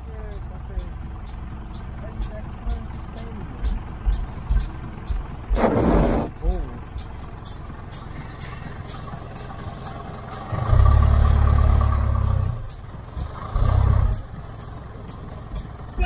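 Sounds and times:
vehicle engine and road noise: 0.0 - 16.0.

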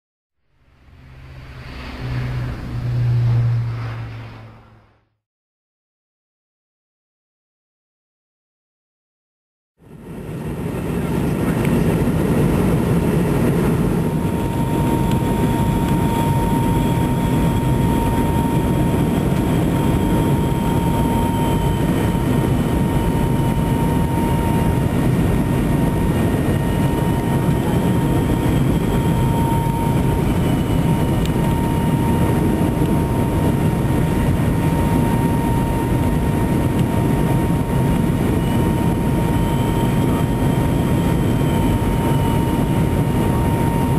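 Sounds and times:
steady whine: 0.4 - 5.2, 9.8 - 43.9
faint wavering tone: 0.5 - 4.9, 26.8 - 33.4
airliner cabin engine noise: 0.5 - 5.2, 9.8 - 43.9.

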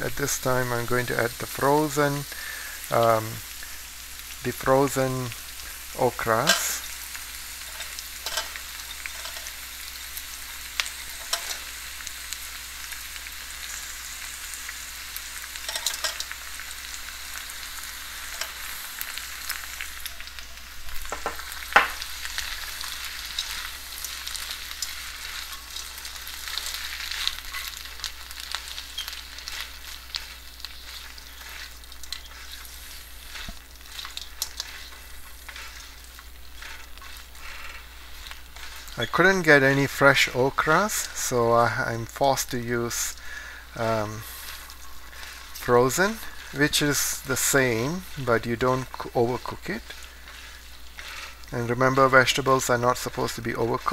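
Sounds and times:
okra sizzling in oil: 0.0 - 53.9
spatula scraping and tapping: 7.7 - 9.5, 11.1 - 11.6, 33.3 - 39.0.

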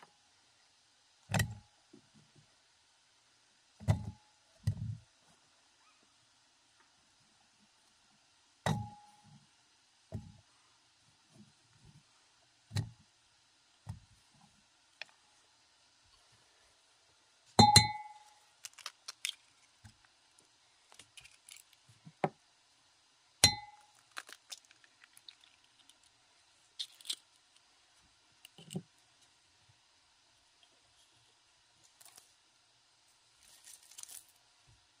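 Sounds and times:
sharp knocks on glass bowl: 17.6 - 18.2.

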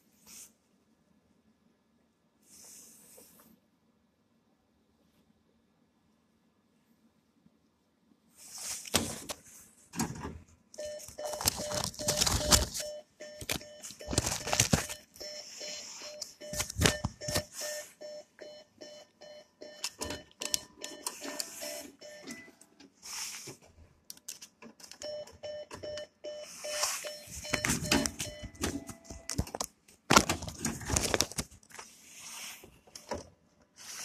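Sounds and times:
cash machine beeping: 10.8 - 22.6, 25.0 - 29.4.

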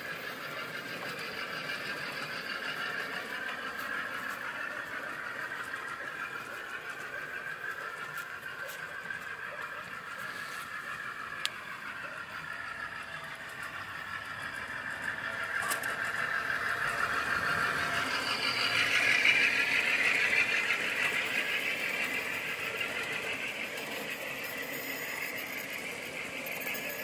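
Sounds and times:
model train rolling past: 0.0 - 27.0.

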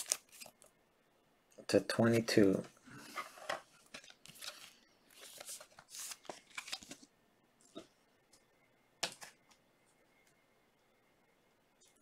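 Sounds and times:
trading cards sliding and rustling: 3.0 - 7.1.

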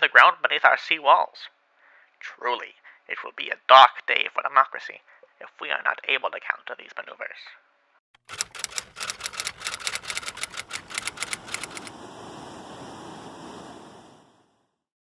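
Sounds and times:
typewriter keys clacking: 8.3 - 11.9
steady hiss: 10.5 - 14.6.

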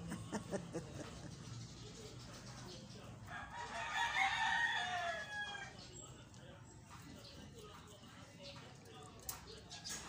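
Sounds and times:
rooster crowing: 3.3 - 5.8.

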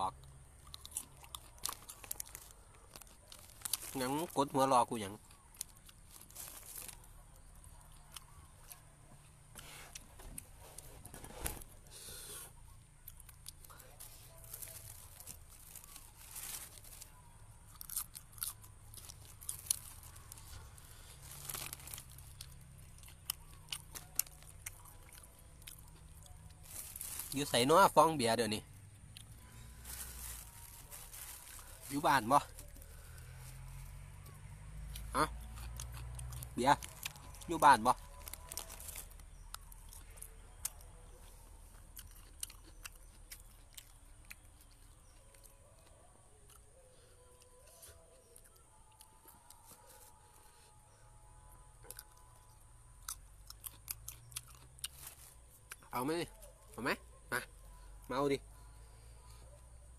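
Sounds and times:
person chewing food: 0.2 - 3.9, 17.7 - 27.2, 34.1 - 37.5, 38.3 - 50.1, 53.0 - 55.9
plastic bag crinkling: 1.2 - 4.4, 5.6 - 7.1, 14.0 - 17.2, 19.0 - 20.6, 21.2 - 22.6, 26.5 - 27.9, 29.8 - 33.5, 36.8 - 39.2.

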